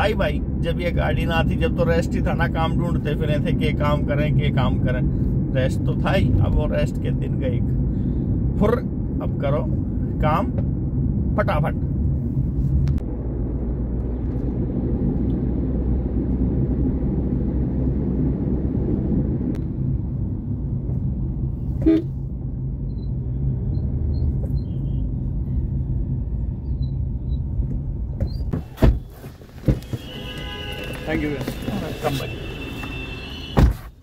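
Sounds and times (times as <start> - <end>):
car engine and road rumble: 0.0 - 34.0
car horn toot: 21.8 - 22.2, 29.6 - 33.9.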